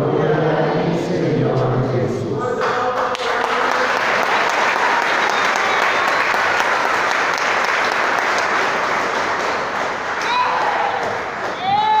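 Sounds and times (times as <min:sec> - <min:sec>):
congregation applauding: 0:02.6 - 0:12.0.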